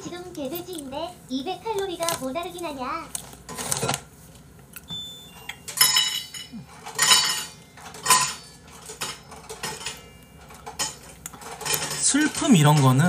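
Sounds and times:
ringing clinks: 0:04.9 - 0:10.4
dishes and cutlery clattering: 0:05.6 - 0:13.0.

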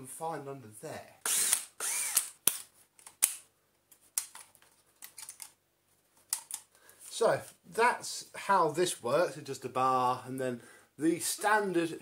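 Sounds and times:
sharp plastic clicks and snaps: 0:02.2 - 0:03.5, 0:04.2 - 0:05.6, 0:06.3 - 0:06.7.

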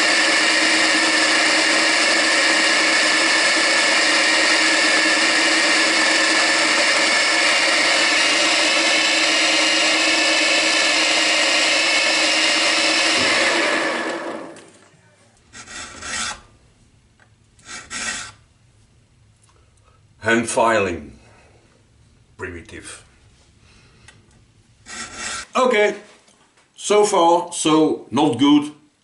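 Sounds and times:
end mill cutting metal: 0:00.0 - 0:14.9, 0:15.5 - 0:16.5, 0:17.6 - 0:18.4, 0:24.8 - 0:25.5
milling machine whining: 0:00.0 - 0:16.6, 0:17.6 - 0:18.5, 0:24.8 - 0:25.5.

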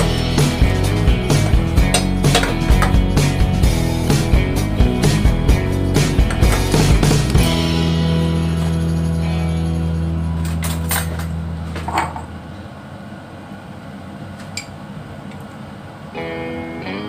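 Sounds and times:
background music: 0:00.0 - 0:11.6, 0:16.2 - 0:17.0.

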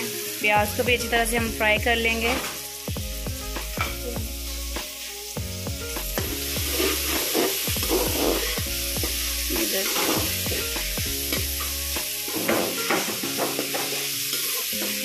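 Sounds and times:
background music: 0:00.0 - 0:15.0
vegetables sizzling in hot oil: 0:00.0 - 0:15.0
metal spoon scraping a pan: 0:06.2 - 0:15.0.

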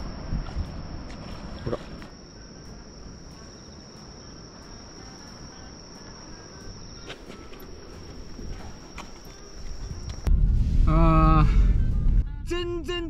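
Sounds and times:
wind rumble: 0:00.0 - 0:01.7, 0:07.7 - 0:13.0
crickets trilling: 0:00.0 - 0:13.0.

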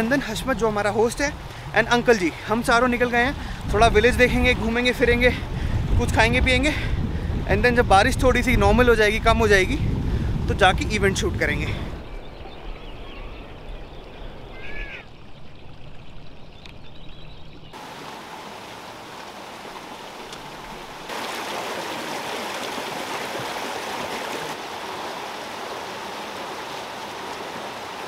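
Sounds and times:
flowing water in a channel: 0:11.6 - 0:28.0.

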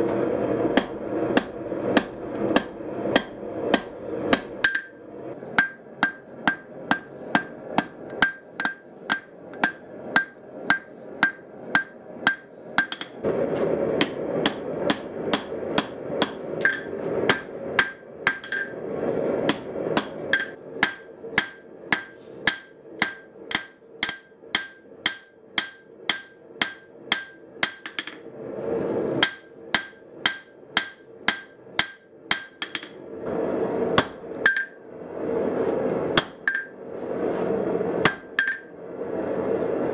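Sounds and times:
hammer striking steel on anvil: 0:00.7 - 0:05.0, 0:05.6 - 0:13.2, 0:14.0 - 0:18.8, 0:19.4 - 0:28.2, 0:29.2 - 0:33.0, 0:34.0 - 0:34.8, 0:36.2 - 0:36.8, 0:38.0 - 0:38.7.

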